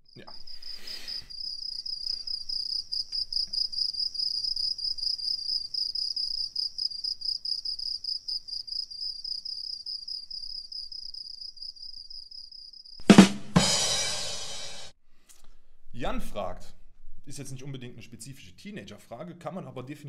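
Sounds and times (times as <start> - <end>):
cricket chirping: 0.1 - 13.0.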